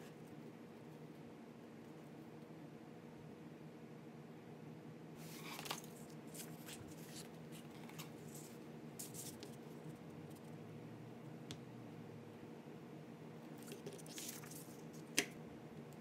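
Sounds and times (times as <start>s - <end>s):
faint room hum: 0.0s - 16.0s
paper rustling: 5.2s - 9.6s, 13.6s - 15.1s.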